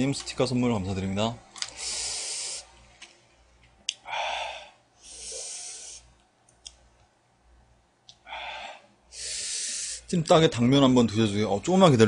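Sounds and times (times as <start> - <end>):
man breathing hard: 1.7 - 2.7, 4.0 - 6.1, 8.2 - 10.1.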